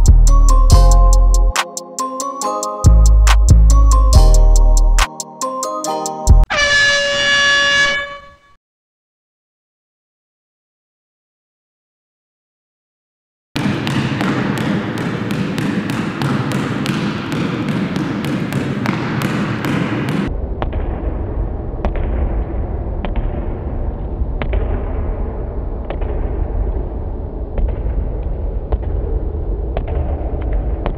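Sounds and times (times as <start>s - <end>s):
basketball dribbling on gym floor: 13.6s - 20.3s
deep rumble: 20.3s - 30.9s.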